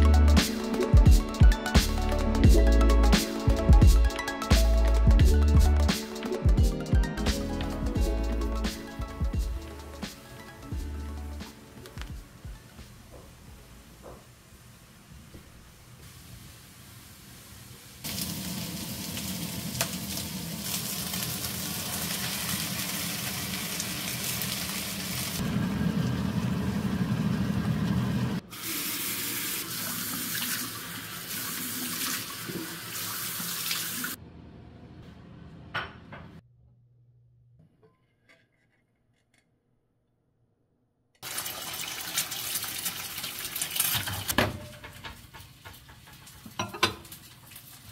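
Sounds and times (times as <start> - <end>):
water running from tap: 18.0 - 34.2, 41.2 - 44.3.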